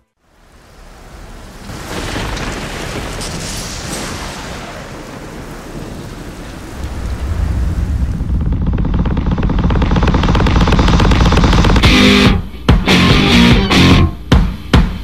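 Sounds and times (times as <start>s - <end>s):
rushing rain-like noise: 0.1s - 8.9s
deep rumble: 5.5s - 12.5s.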